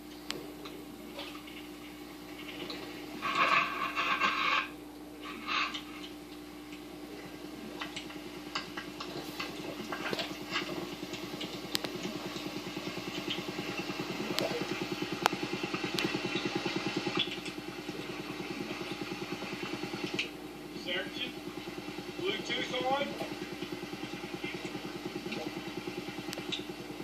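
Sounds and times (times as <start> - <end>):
motor running with fast pulse: 9.2 - 27.0.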